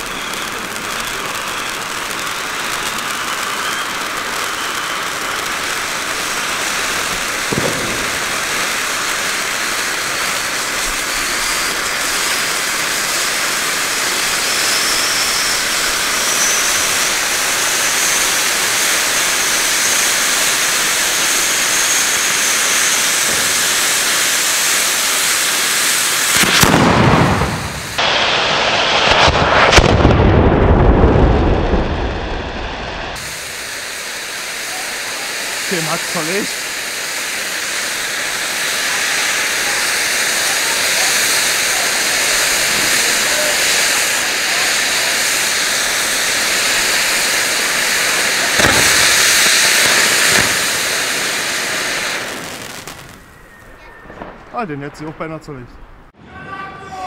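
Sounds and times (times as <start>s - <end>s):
faint whistle rising in pitch: 0.0s - 5.2s, 14.4s - 18.4s, 53.1s - 54.3s
fireworks fountain spraying hiss: 0.0s - 56.1s.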